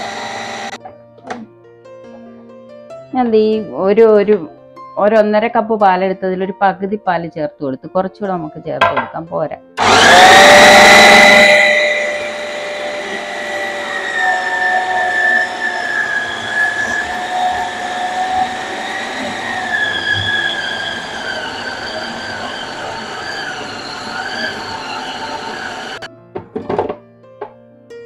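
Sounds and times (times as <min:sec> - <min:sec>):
food processor motor whine: 0:00.0 - 0:01.4, 0:09.8 - 0:26.1.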